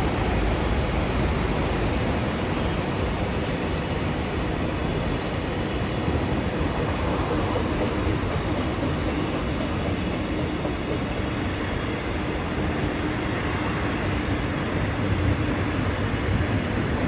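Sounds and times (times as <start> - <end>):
train wagons rolling on rails: 0.0 - 17.0.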